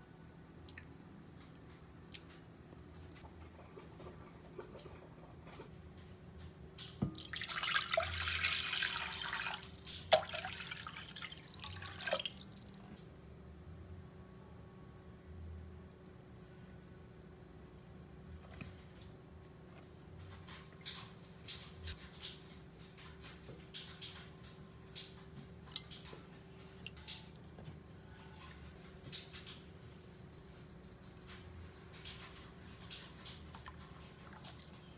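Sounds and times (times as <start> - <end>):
water pouring into pot: 7.1 - 12.8.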